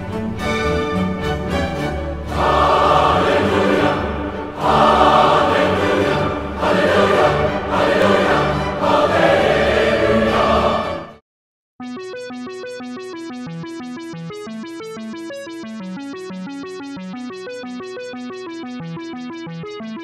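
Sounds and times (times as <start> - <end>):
choral music: 0.0 - 11.2.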